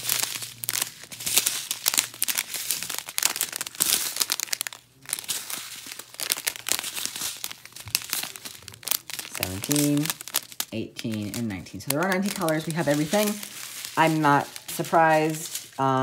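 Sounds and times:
plastic bags crinkling: 0.0 - 16.0.

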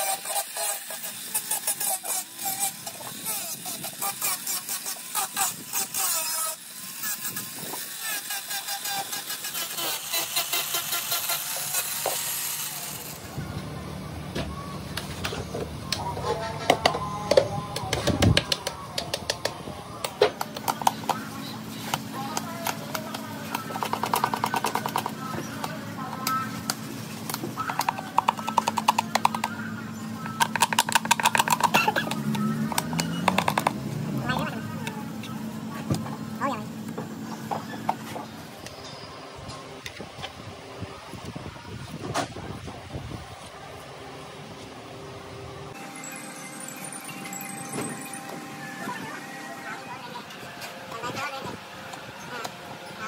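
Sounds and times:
angle grinder sanding: 0.0 - 13.3.

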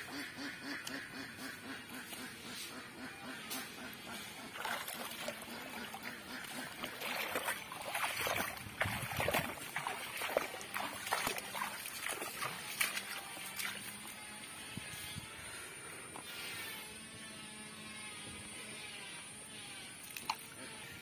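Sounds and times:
water splashing and trickling: 4.2 - 14.8, 20.0 - 20.6.

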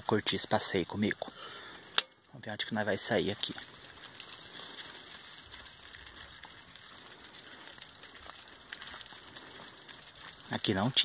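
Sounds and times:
footsteps on dirt track: 2.7 - 11.0.

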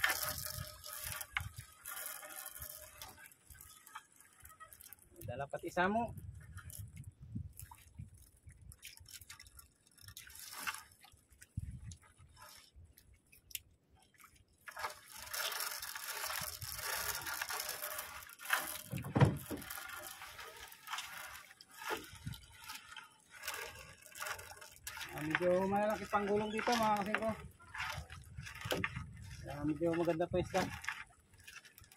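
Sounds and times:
net mesh rustling: 0.0 - 5.1, 14.7 - 31.9
water dripping and splashing: 0.0 - 31.9.

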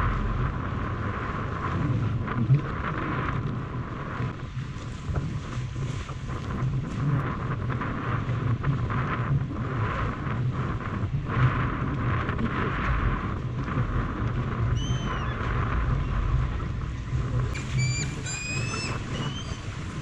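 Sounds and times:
water sloshing against boat hull: 0.0 - 20.0
wind buffeting microphone: 0.0 - 20.0
short chirp: 17.6 - 19.7.

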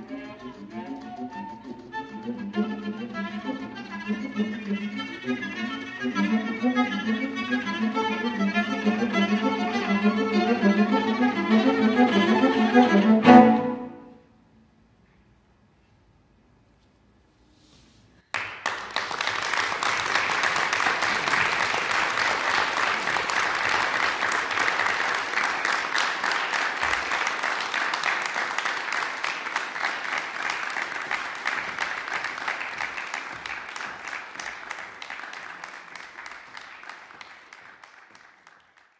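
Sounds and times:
audience applauding: 18.3 - 38.9.

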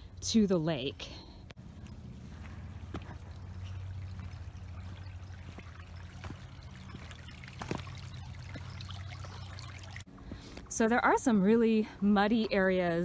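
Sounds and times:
stream trickling: 1.7 - 11.2.

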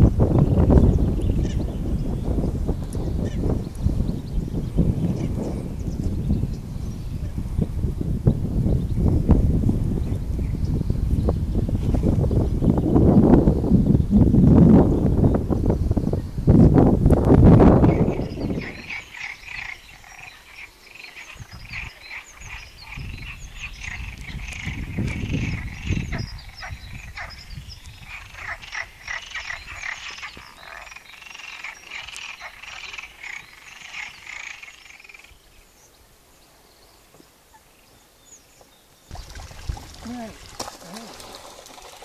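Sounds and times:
frogs croaking: 17.8 - 35.7.

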